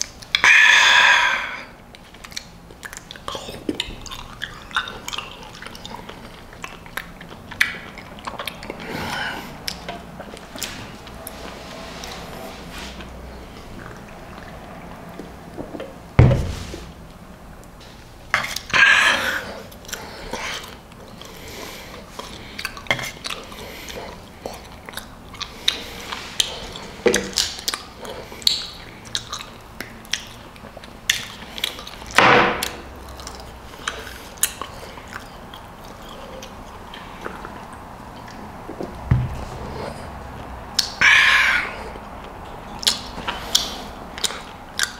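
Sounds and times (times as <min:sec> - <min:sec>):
chewing: 0:01.7 - 0:16.0, 0:17.1 - 0:44.9
low thump: 0:16.2 - 0:16.6.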